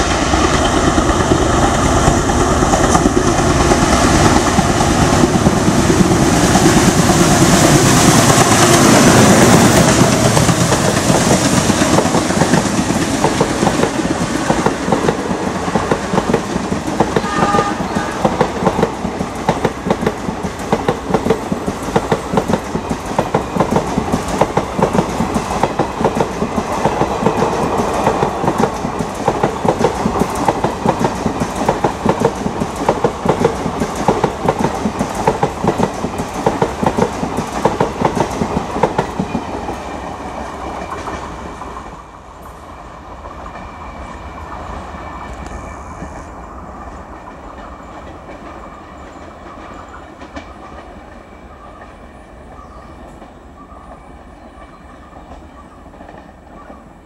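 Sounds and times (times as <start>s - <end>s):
train wheels clattering: 0.0s - 41.8s.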